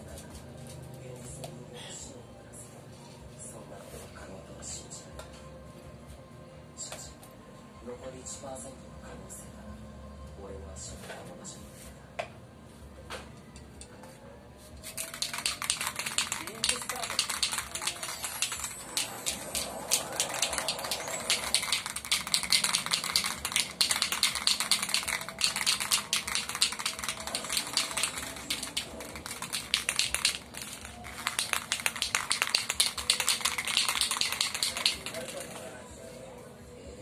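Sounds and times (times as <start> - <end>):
aerosol spray can hissing: 15.0 - 35.6.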